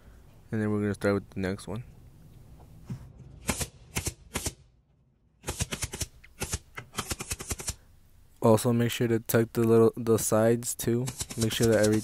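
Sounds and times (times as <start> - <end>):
pneumatic stapler shots: 3.4 - 4.7, 5.4 - 7.8, 11.1 - 12.0.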